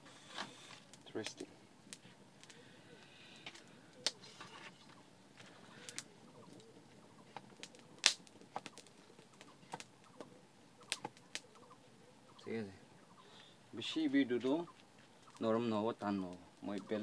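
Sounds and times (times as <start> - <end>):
wood fire crackling: 0.0 - 17.0
faint bird call: 2.4 - 15.6.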